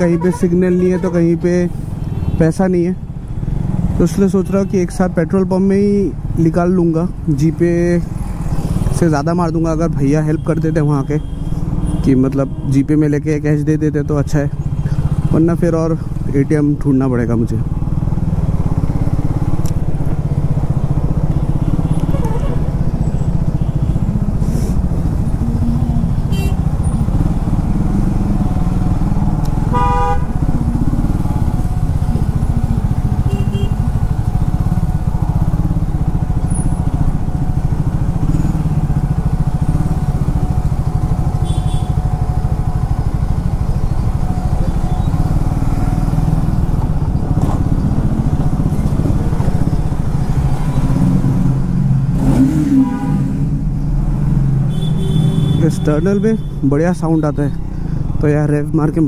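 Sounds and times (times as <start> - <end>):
vehicle horn: 0.0 - 1.4, 21.6 - 22.7, 26.3 - 26.7, 29.7 - 30.4, 33.2 - 33.9, 41.4 - 42.1, 52.3 - 53.3, 54.7 - 56.6
motorcycle engine running: 13.6 - 55.6.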